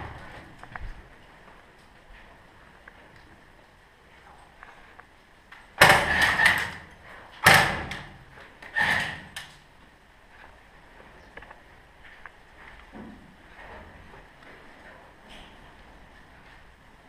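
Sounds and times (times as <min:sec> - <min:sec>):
airsoft gun firing: 0:05.8 - 0:06.8, 0:07.4 - 0:08.1.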